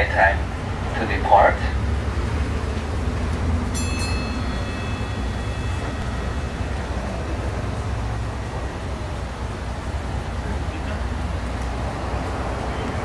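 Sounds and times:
bus engine idling: 0.0 - 13.0
thin high whine: 3.8 - 10.1.

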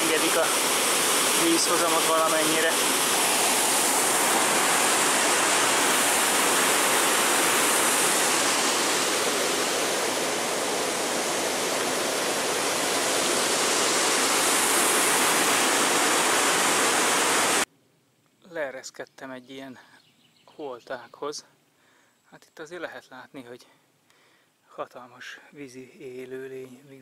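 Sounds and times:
water rushing through flood gate: 0.0 - 17.7.

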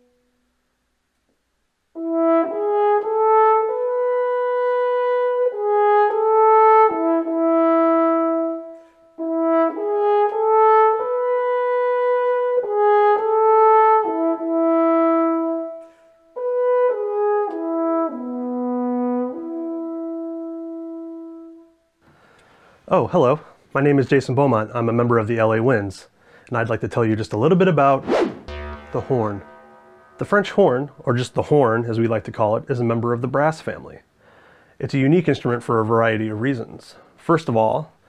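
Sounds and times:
solo french horn melody: 2.0 - 21.7, 28.0 - 31.1.

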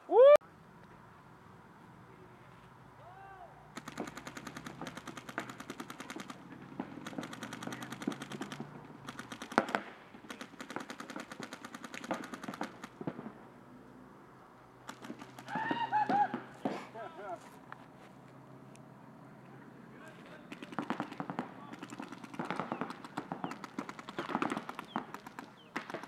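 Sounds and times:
paintball markers firing: 3.8 - 13.4, 14.8 - 16.8, 20.3 - 26.0.

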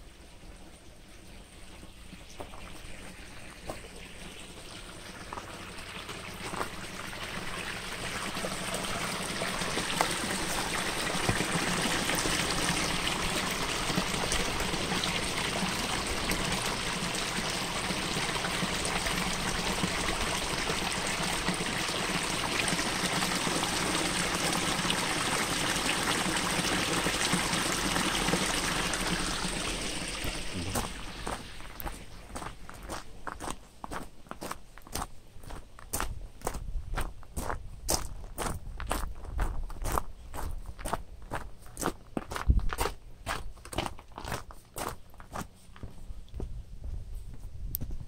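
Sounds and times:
stream flowing: 1.5 - 33.1.

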